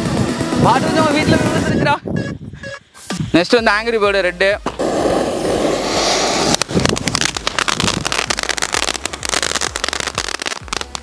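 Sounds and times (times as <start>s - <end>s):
firework hissing: 4.6s - 11.0s
firework crackling pops: 5.8s - 11.0s.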